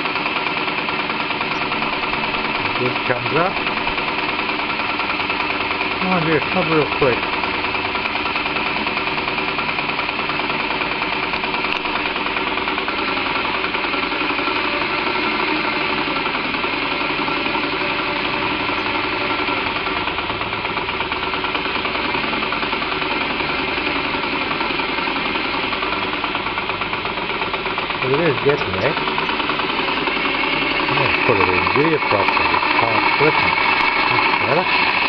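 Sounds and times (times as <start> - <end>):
model crane engine running: 0.0 - 35.0.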